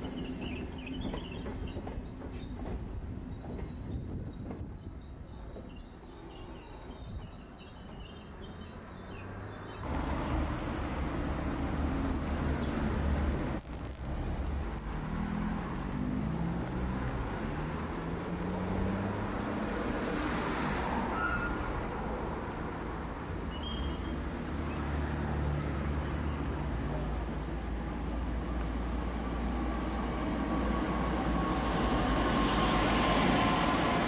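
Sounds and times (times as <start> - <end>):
short high squeal: 13.6 - 14.4.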